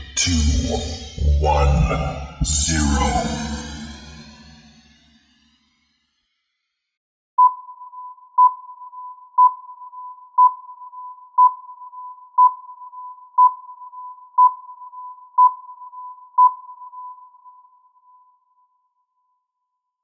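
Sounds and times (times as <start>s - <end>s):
timer beeping: 0.0s - 5.0s.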